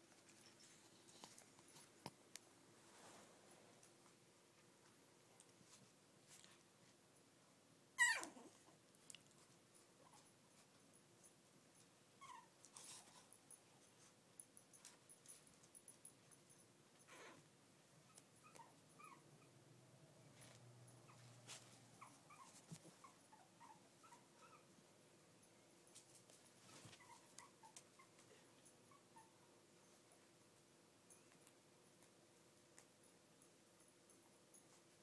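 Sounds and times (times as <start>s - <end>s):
puppy whimpering: 8.0s - 8.7s, 12.2s - 13.2s, 18.1s - 19.6s, 22.0s - 24.7s, 26.8s - 28.2s.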